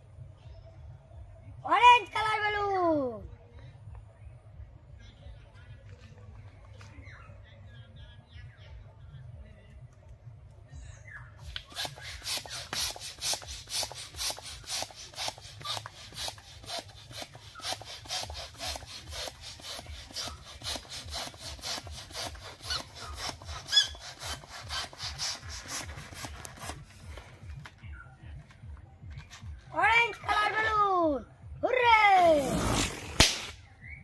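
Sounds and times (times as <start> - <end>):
balloon squeak: 11.4 - 26.8, 32.3 - 33.5
hand pump hissing air: 11.5 - 27.0.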